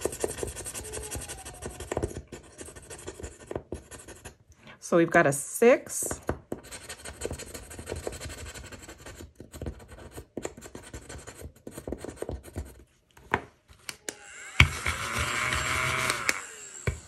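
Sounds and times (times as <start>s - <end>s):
stylus scratching scratch-off card: 0.0s - 4.4s, 6.5s - 12.8s
handheld battery gadget whirring: 14.0s - 17.0s.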